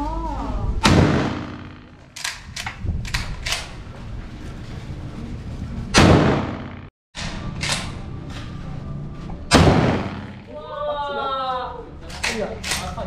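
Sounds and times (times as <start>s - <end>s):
shotgun shot: 0.8s - 2.0s, 6.0s - 6.9s, 9.5s - 10.5s.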